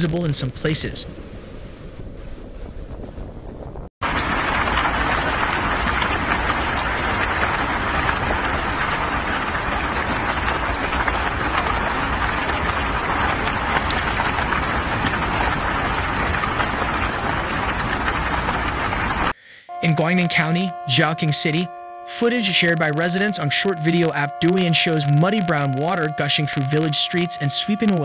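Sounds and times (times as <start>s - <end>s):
heavy rain falling: 4.0s - 19.4s.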